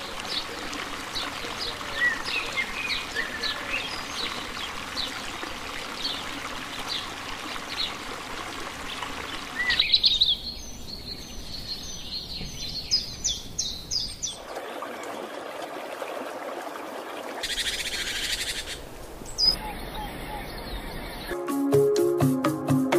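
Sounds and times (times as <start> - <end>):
rushing river water: 0.0 - 10.8, 12.7 - 19.6
birds chirping: 17.4 - 21.4.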